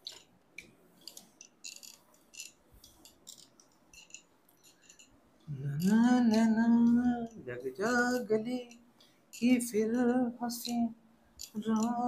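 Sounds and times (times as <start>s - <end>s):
man singing: 5.5s - 8.8s, 9.4s - 11.0s, 11.6s - 12.0s.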